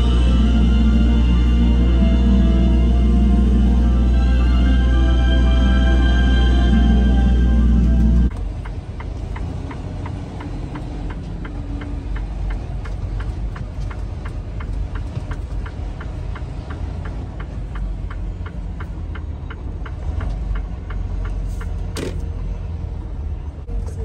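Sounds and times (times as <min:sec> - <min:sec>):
diesel engine rumbling: 0:00.0 - 0:24.0
turn signal clicking: 0:07.9 - 0:22.4.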